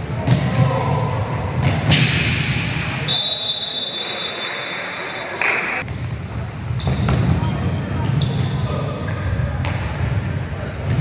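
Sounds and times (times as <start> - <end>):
shouts and chatter echoing: 0.0 - 1.6, 2.7 - 5.9
referee's whistle blast: 3.1 - 4.9.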